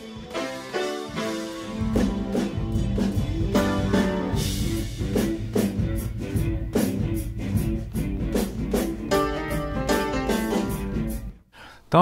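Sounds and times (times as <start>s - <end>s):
piano chords with chorus effect: 0.0s - 5.0s, 9.1s - 11.0s
drum kit steady beat: 0.0s - 11.4s.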